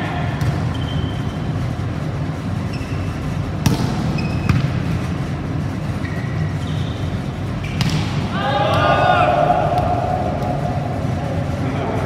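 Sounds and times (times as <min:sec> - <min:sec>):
steady low hum: 0:00.0 - 0:12.0
shoes squeaking on court: 0:00.4 - 0:01.7, 0:02.6 - 0:05.1, 0:05.8 - 0:08.0
volleyball smacks: 0:07.7 - 0:08.9.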